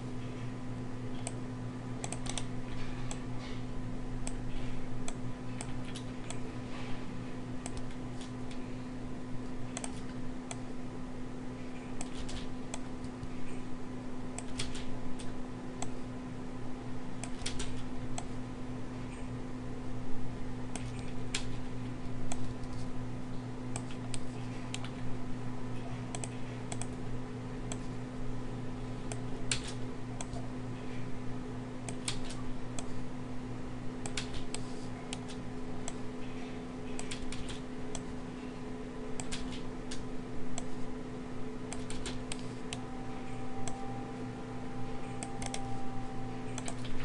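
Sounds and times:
steady low hum: 0:00.0 - 0:47.0
computer keyboard and mouse clicks: 0:02.0 - 0:02.5, 0:05.0 - 0:06.4, 0:07.6 - 0:08.6, 0:09.7 - 0:10.6, 0:12.0 - 0:13.3, 0:14.4 - 0:16.0, 0:17.2 - 0:18.3, 0:20.7 - 0:21.6, 0:26.1 - 0:27.0, 0:29.1 - 0:30.4, 0:31.9 - 0:32.9, 0:34.0 - 0:36.0, 0:36.9 - 0:38.1, 0:39.1 - 0:40.8, 0:41.7 - 0:42.8, 0:45.1 - 0:45.7, 0:46.5 - 0:47.0.

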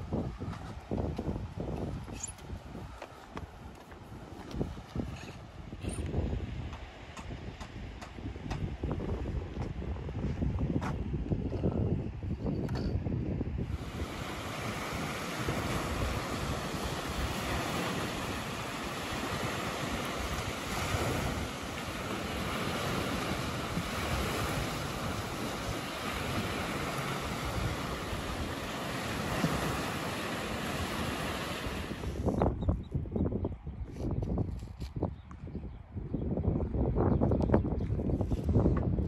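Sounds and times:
wind on microphone: 0:00.0 - 0:39.0
sea surf washing in: 0:13.6 - 0:32.4.

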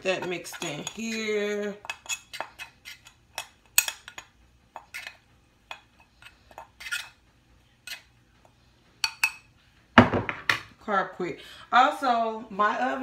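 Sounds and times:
fork scraping ceramic bowl: 0:00.0 - 0:07.2, 0:07.8 - 0:08.1.

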